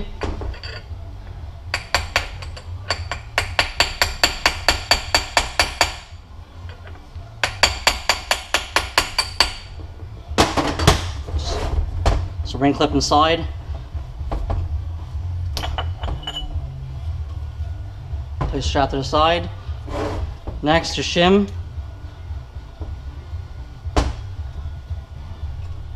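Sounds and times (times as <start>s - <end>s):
hammer tapping metal punch: 1.8s - 6.1s, 7.4s - 9.7s.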